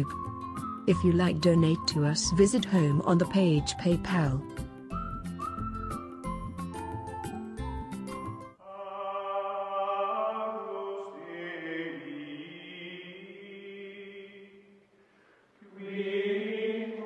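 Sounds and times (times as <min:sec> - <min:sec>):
chant-like vocal music: 0:08.6 - 0:14.8, 0:15.6 - 0:17.0.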